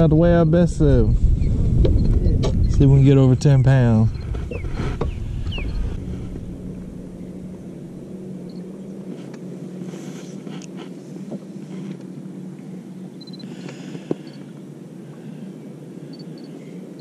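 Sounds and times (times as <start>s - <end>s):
wind and water hiss: 0.0s - 17.0s
electric motor humming: 4.1s - 14.7s.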